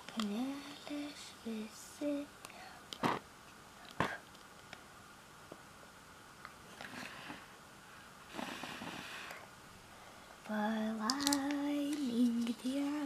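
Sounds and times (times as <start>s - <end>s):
person singing: 10.5s - 13.0s.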